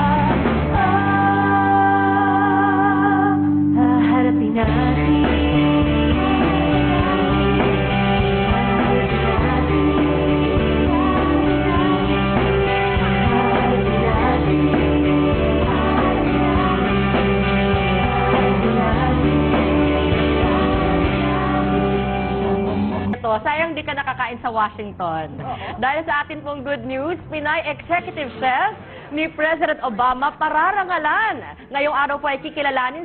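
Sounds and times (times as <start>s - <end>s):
music with singing: 0.0s - 23.2s.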